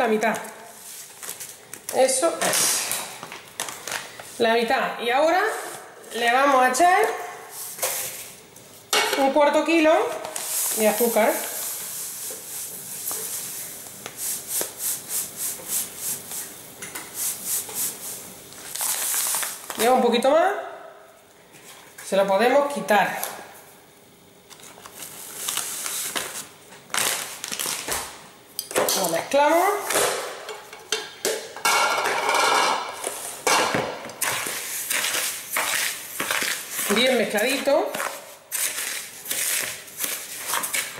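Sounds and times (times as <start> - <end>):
gritty scraping in a bowl: 34.2 - 40.9.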